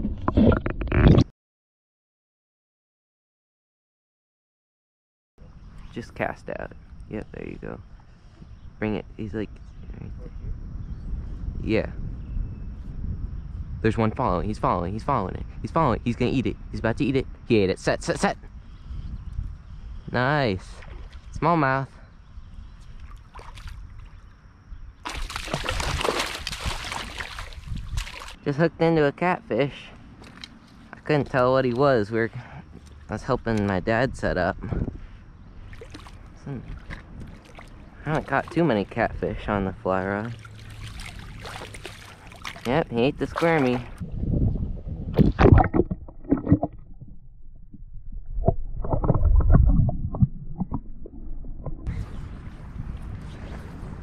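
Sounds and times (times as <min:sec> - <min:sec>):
water splashing and sloshing: 0:20.6 - 0:21.4, 0:22.8 - 0:24.3, 0:25.0 - 0:28.4, 0:30.0 - 0:32.0, 0:32.7 - 0:33.8, 0:35.5 - 0:39.1, 0:40.0 - 0:54.0
muffled underwater rumbling: 0:32.7 - 0:54.0
dull underwater knocks: 0:45.1 - 0:51.9.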